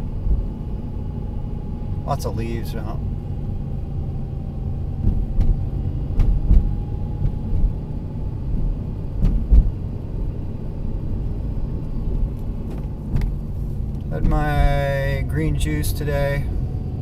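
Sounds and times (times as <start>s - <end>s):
car engine and tyres rumbling: 0.0s - 17.0s
knocks and bumps: 6.2s - 7.7s, 8.6s - 9.7s, 14.1s - 14.8s.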